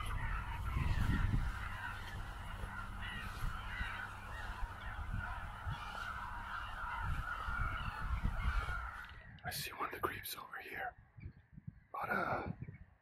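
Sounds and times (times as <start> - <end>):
water birds calling: 0.0 - 9.5.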